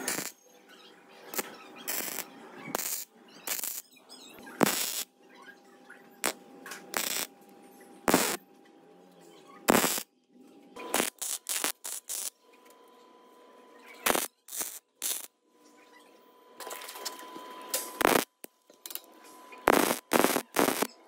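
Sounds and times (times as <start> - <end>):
welder arc bursts: 0.0 - 0.4, 1.3 - 3.8, 4.6 - 5.1, 6.2 - 7.3, 8.1 - 8.4, 9.7 - 10.1, 10.9 - 12.3, 14.0 - 15.3, 18.0 - 18.5, 19.7 - 20.9.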